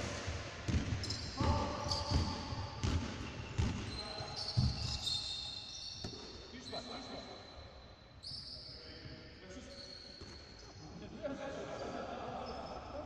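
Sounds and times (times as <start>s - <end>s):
basketball bouncing on hardwood: 0.7s - 3.9s, 4.6s - 5.0s
shoes squeaking on floor: 0.8s - 7.6s, 8.2s - 10.9s.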